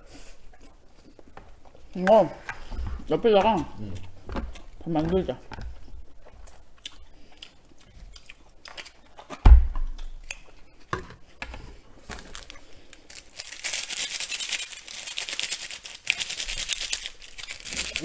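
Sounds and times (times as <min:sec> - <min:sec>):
heavy thump: 0:09.4 - 0:10.0
plastic packet crinkling: 0:12.1 - 0:18.0.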